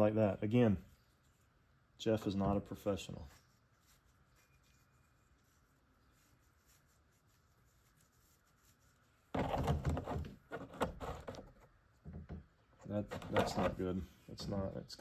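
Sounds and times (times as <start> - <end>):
rubbing scraping and knocking plastic: 9.3 - 14.8.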